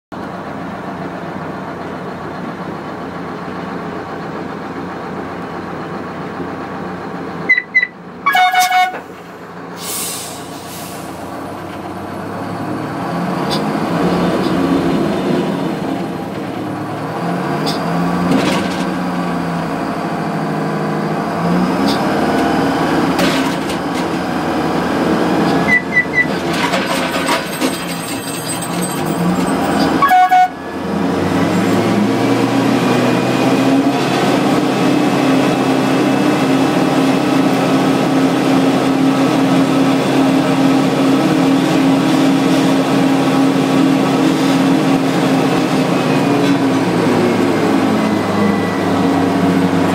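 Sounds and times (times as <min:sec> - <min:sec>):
diesel engine running: 0:00.1 - 0:49.9
short high signal toots: 0:07.5 - 0:09.0.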